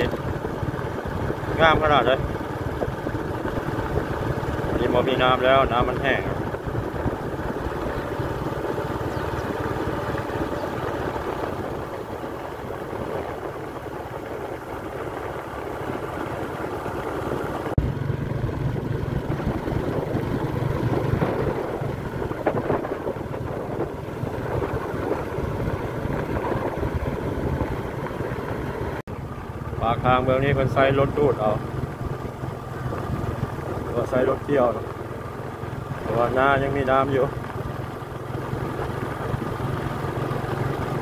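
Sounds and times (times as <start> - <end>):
wind noise on microphone: 0.0 - 16.0, 17.8 - 28.6
vehicle engine running: 0.0 - 41.0.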